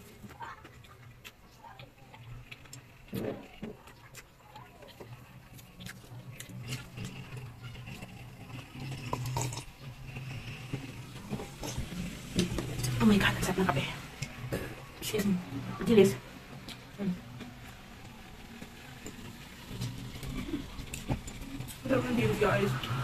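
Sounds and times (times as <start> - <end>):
wet chewing and lip smacks: 2.1 - 7.1.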